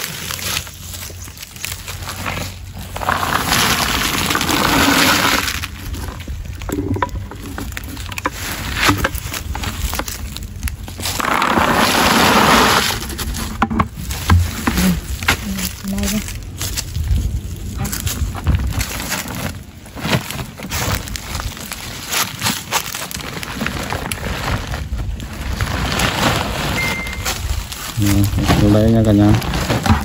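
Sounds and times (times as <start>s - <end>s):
nuts pouring into sack: 2.8s - 6.9s.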